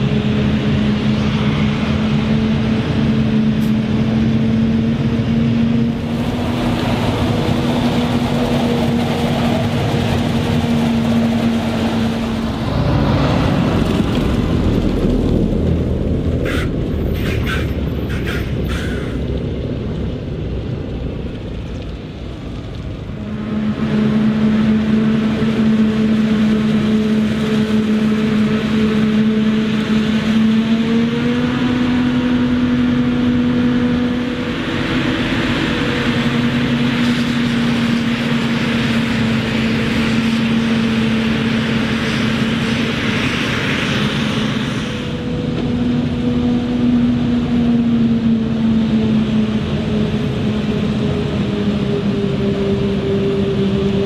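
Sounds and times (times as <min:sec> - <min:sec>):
forage harvester droning: 0:00.0 - 0:54.0
loud hissing rush: 0:38.8 - 0:45.3.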